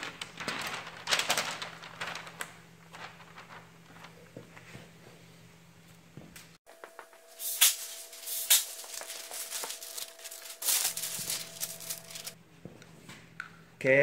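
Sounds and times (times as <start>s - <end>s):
paper crinkling and rustling: 0.0s - 4.6s, 6.9s - 12.4s.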